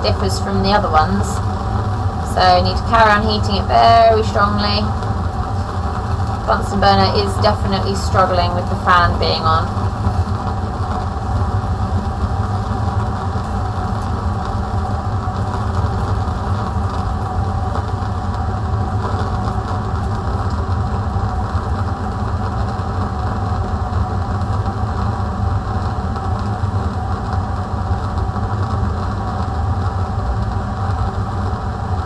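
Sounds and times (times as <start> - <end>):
burner flame hissing: 0.0 - 32.0
extraction fan rumble: 0.0 - 32.0.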